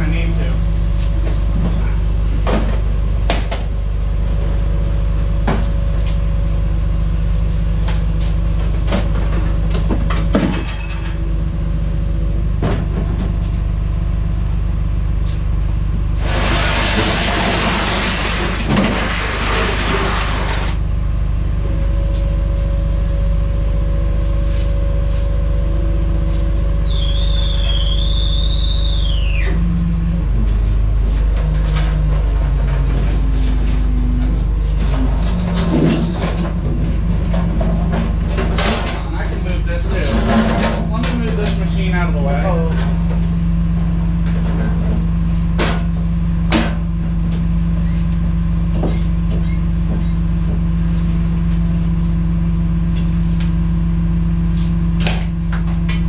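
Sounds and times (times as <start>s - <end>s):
low engine drone: 0.0s - 56.0s
high squeal falling in pitch: 26.5s - 29.9s.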